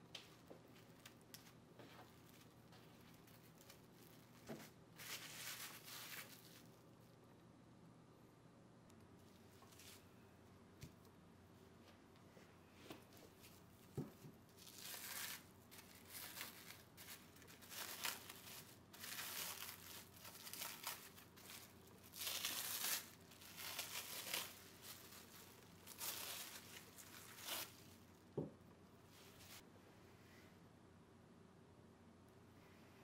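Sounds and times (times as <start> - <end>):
cling film crinkling: 0.2 - 6.8, 13.4 - 28.2.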